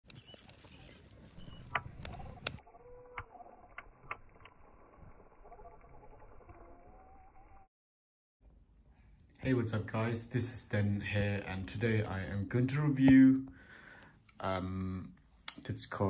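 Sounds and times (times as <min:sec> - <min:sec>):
wood fire crackling: 0:00.1 - 0:06.6.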